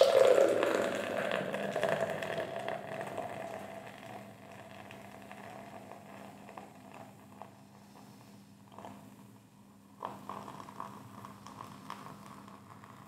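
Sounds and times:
beer foam fizzing: 0.0 - 5.2
beer pouring into glass: 0.0 - 7.2.

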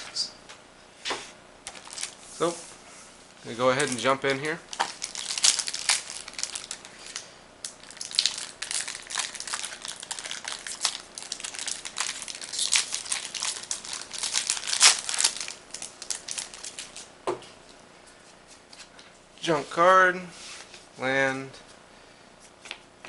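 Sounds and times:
foil wrapper crinkling and tearing: 1.6 - 2.2, 3.6 - 17.1.

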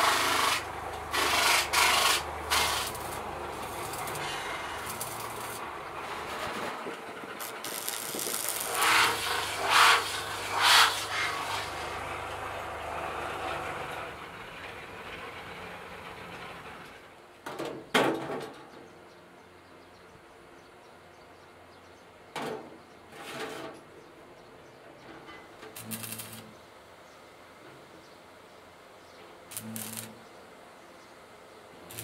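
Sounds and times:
arc welding crackling hiss: 0.0 - 12.0, 25.7 - 26.6, 29.5 - 30.3.

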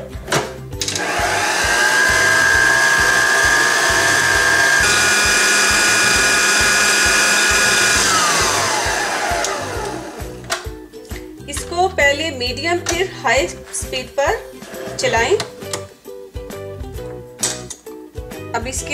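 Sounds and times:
stand mixer motor whine: 0.9 - 10.4.

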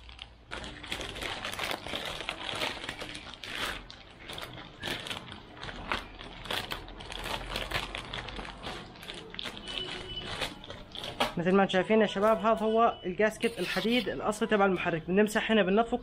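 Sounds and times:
small crackles and scrapes: 0.0 - 11.6
packaging crinkling and rustling: 0.0 - 12.6, 13.4 - 14.6.

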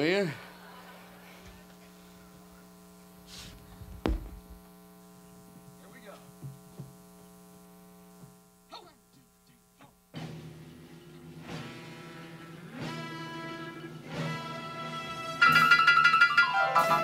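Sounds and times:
electrical mains hum: 0.0 - 17.0
faint small knocks: 3.8 - 4.6
sharp thump: 4.0 - 4.6.

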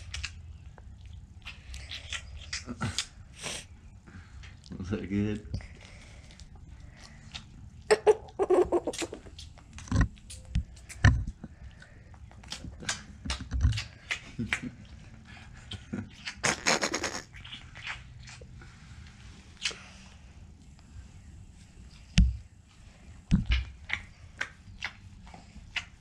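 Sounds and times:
calf sucking fingers: 15.6 - 20.2.

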